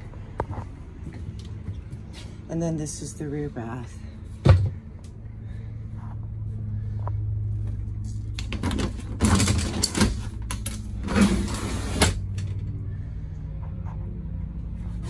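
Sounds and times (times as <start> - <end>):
low hum: 0.0 - 15.0
glass shower door scraping and clattering: 11.0 - 12.3.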